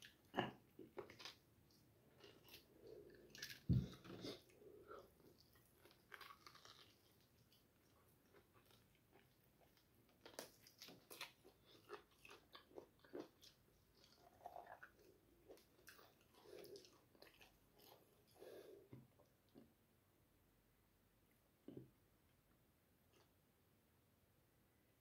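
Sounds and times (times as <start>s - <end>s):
person chewing crunchy food: 0.0s - 18.8s.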